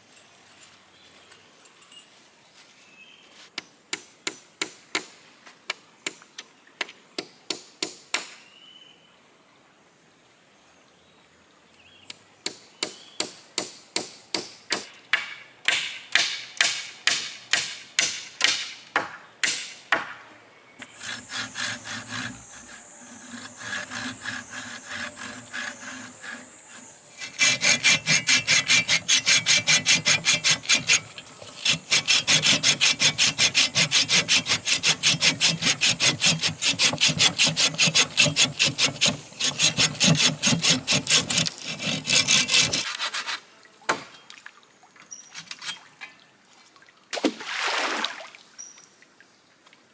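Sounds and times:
hand saw cutting wood: 0:20.8 - 0:43.5.

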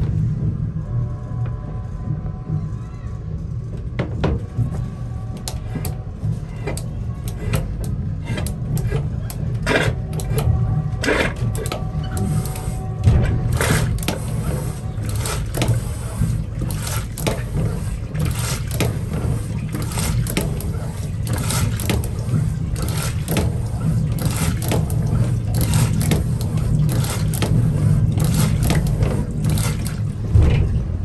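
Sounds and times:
train coach rumble: 0:00.0 - 0:31.0
metal toilet flush lever clicking: 0:06.7 - 0:15.9.

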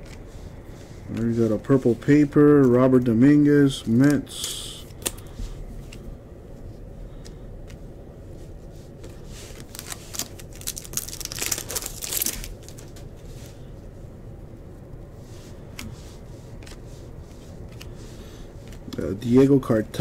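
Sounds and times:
trading cards rustling and clicking: 0:01.0 - 0:06.1, 0:09.0 - 0:13.2, 0:15.5 - 0:20.0.

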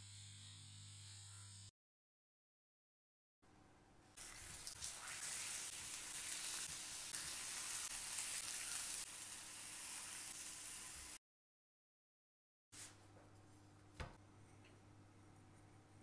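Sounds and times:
caramel sizzling in skillet: 0:04.2 - 0:11.2.

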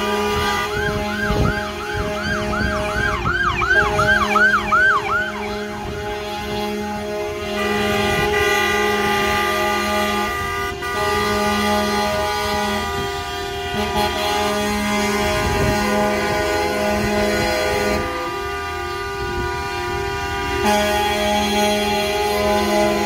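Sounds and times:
siren yelping: 0:00.0 - 0:06.6
truck air horns blaring: 0:00.0 - 0:23.0.

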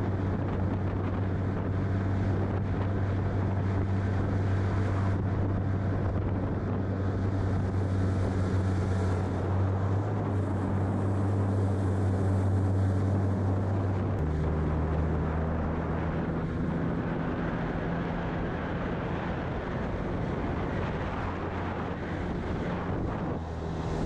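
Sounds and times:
outboard motor running: 0:00.0 - 0:24.0.

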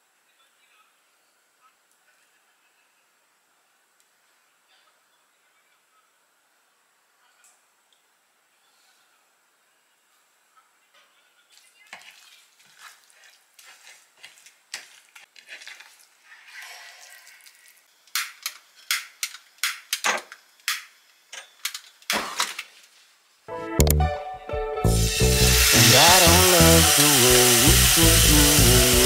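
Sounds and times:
hands rubbing meat: 0:11.9 - 0:17.7.

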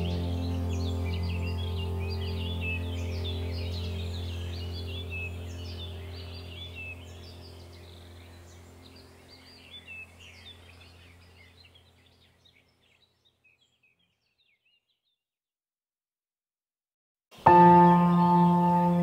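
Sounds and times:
steady low drone: 0:00.0 - 0:12.0
birds chirping: 0:00.0 - 0:15.2, 0:17.4 - 0:19.0.

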